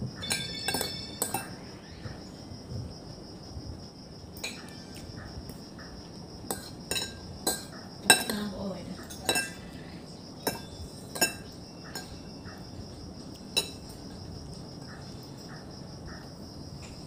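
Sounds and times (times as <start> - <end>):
crickets chirring: 0.0 - 17.0
spoon clinking against plate: 0.2 - 1.7, 6.5 - 8.4, 9.0 - 9.8, 10.4 - 12.3, 13.5 - 14.0.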